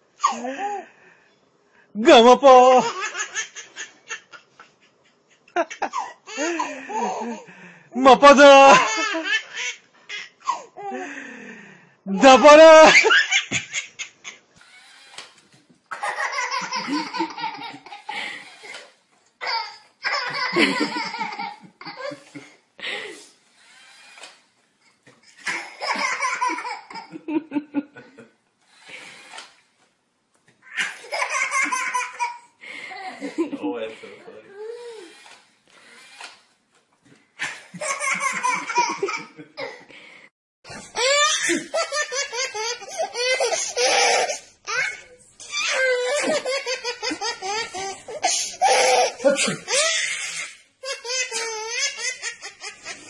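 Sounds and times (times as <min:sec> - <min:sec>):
baby laughing: 0:02.5 - 0:04.5, 0:08.6 - 0:10.6, 0:15.9 - 0:18.7, 0:19.4 - 0:22.4, 0:25.4 - 0:27.2, 0:30.7 - 0:32.5, 0:37.4 - 0:39.8, 0:40.7 - 0:53.0.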